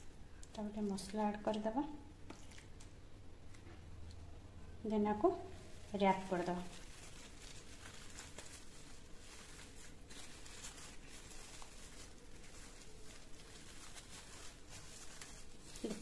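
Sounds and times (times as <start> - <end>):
leaves rustling and crinkling: 5.1 - 16.0.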